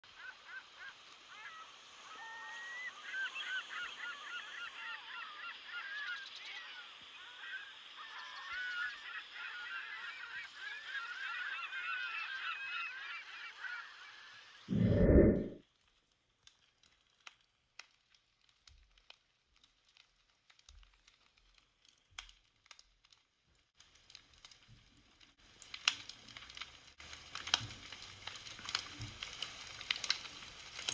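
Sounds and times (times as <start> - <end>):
flock of birds honking: 0.1 - 13.9.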